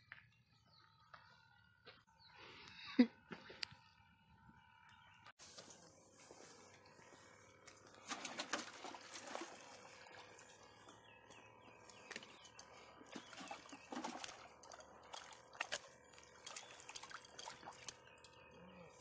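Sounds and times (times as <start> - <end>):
fish splashing at water surface: 13.0 - 18.4.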